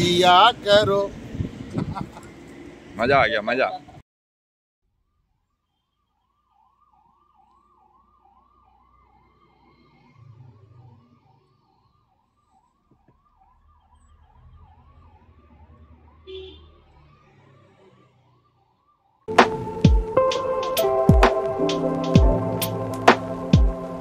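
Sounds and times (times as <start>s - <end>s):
faint siren-like yelping tone: 5.0s - 24.0s.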